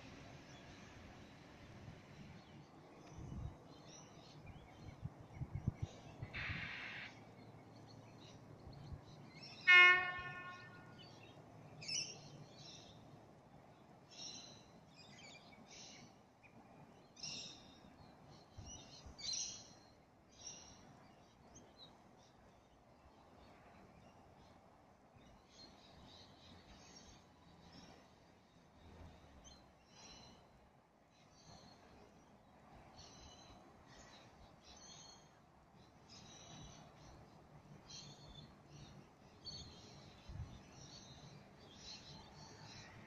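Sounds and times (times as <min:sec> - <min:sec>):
train horn blast: 0:09.7 - 0:11.0.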